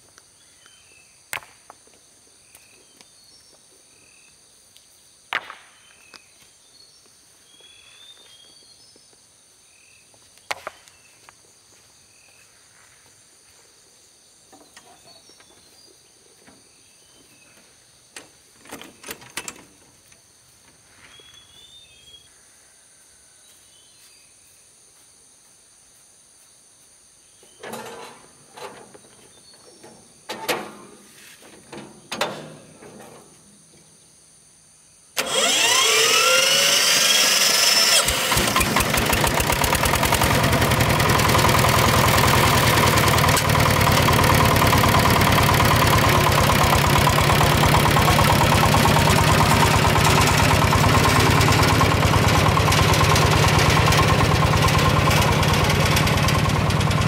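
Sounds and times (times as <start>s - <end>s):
wheelbarrow rattling: 38.3s - 57.0s.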